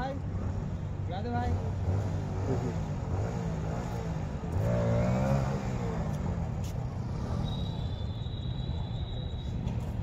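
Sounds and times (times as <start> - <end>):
motorcycle engine revving: 1.3 - 7.8.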